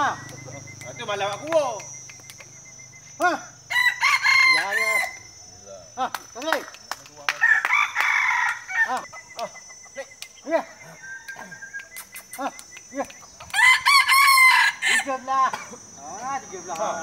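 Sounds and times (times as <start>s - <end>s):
roosters crowing: 2.5s - 5.6s, 7.3s - 10.0s, 10.6s - 12.0s, 13.2s - 16.0s.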